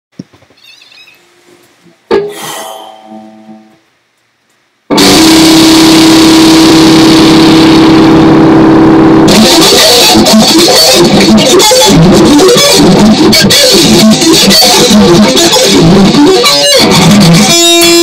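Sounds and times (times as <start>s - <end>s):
distorted guitar note: 2.1s - 3.9s, 4.9s - 18.0s
electric guitar chord: 4.9s - 18.0s
picked guitar notes: 4.9s - 18.0s.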